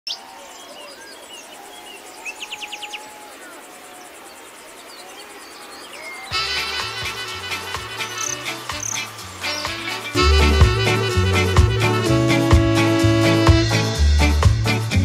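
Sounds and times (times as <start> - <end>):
crickets chirring: 0.1 - 10.2
small birds chirping: 0.1 - 10.4
bird trill: 0.1 - 10.6
music from phone: 6.3 - 15.0.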